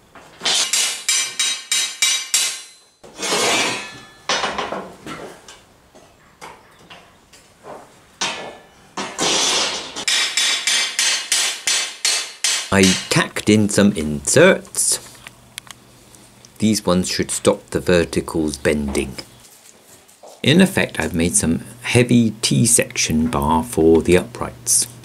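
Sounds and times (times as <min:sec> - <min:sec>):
hammer clanking on steel: 0:00.4 - 0:05.2, 0:08.2 - 0:13.2
ringing metal clang: 0:00.5 - 0:04.7.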